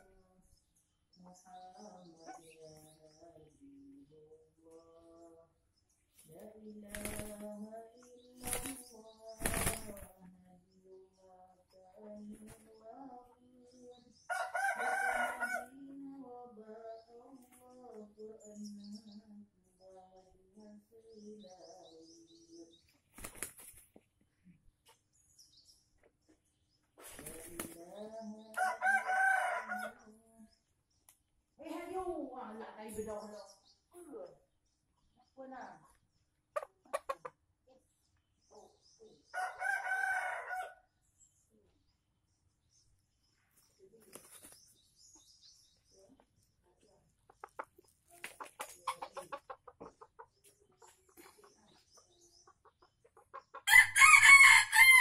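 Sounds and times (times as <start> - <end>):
small birds chirping: 0.0 - 55.0
rooster flapping wings: 6.9 - 7.5, 8.4 - 8.8, 9.4 - 10.1, 23.1 - 23.8
rooster crowing: 39.4 - 40.8, 53.7 - 55.0.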